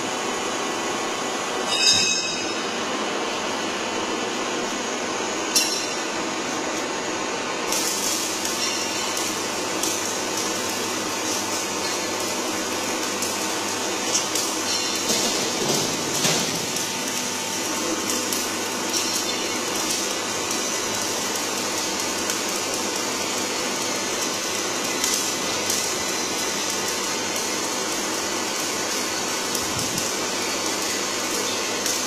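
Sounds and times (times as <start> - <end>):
bending machine whirring: 0.4 - 32.0.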